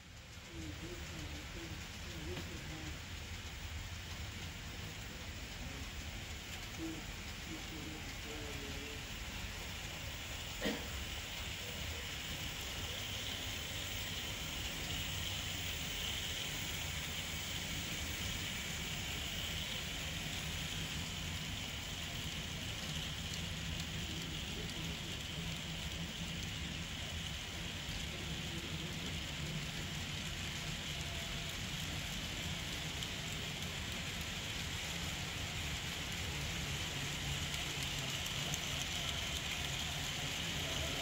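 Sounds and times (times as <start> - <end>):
model train wheels pattering: 0.0 - 41.0.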